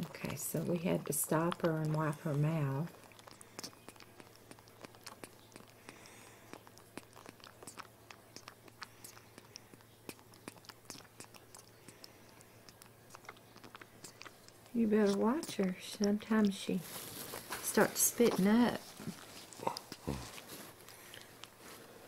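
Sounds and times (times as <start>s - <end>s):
low steady hum: 0.0s - 22.0s
monkey suckling wet clicks: 1.0s - 16.6s.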